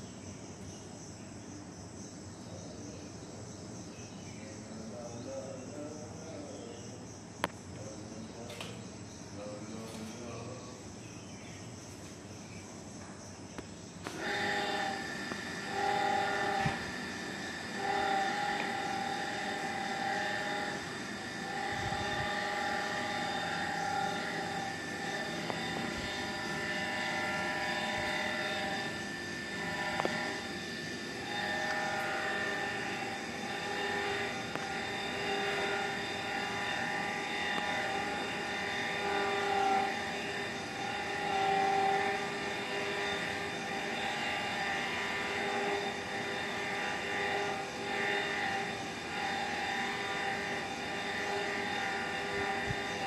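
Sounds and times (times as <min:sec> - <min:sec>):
machine drone: 0:04.8 - 0:53.0.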